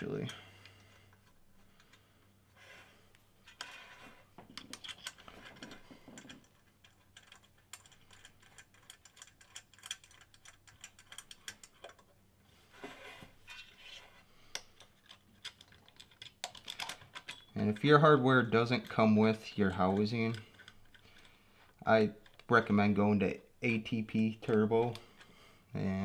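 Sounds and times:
metal bolts clicking and tapping: 4.4s - 12.2s, 14.6s - 22.8s.

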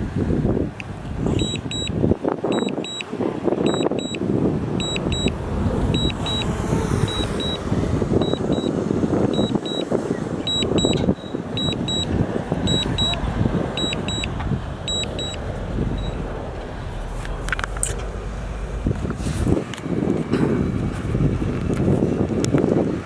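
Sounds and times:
diesel machinery rumbling: 0.0s - 23.0s
warning alarm beeps: 1.3s - 4.2s, 4.8s - 7.6s, 8.2s - 9.9s, 10.5s - 17.1s.

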